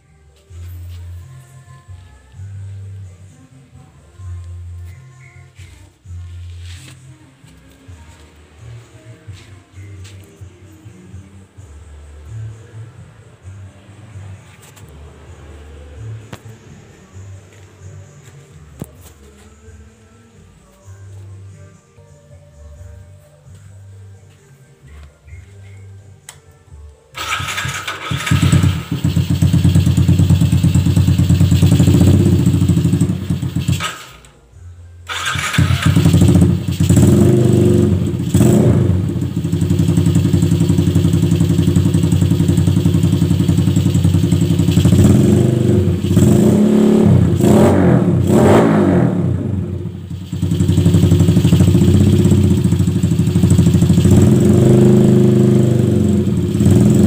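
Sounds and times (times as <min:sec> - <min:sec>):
motorcycle engine starting and idling: 0:00.0 - 0:19.4, 0:27.1 - 0:57.0
motorcycle engine revving: 0:27.2 - 0:34.3, 0:35.1 - 0:57.0.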